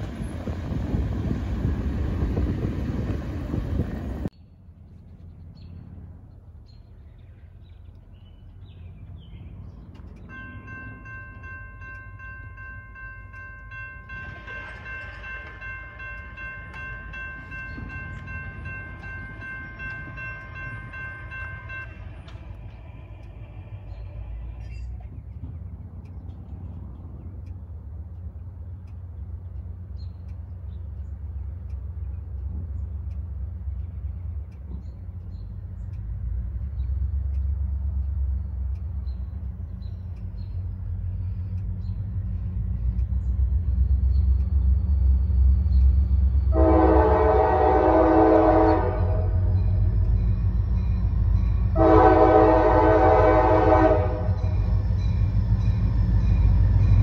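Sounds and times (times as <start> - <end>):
diesel locomotive engine rumble: 0.0 - 57.0
train air horn chord: 46.5 - 49.6, 51.7 - 54.6.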